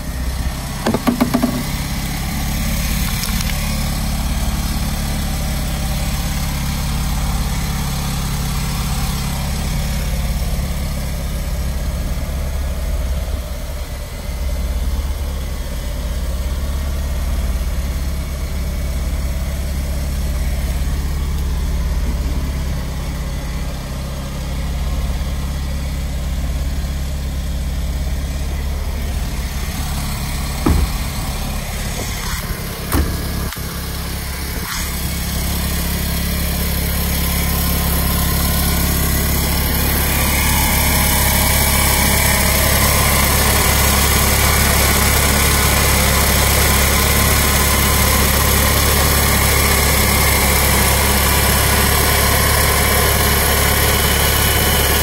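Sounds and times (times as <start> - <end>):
car engine idling: 0.0 - 55.0
short knocks: 0.8 - 1.8, 30.5 - 33.6.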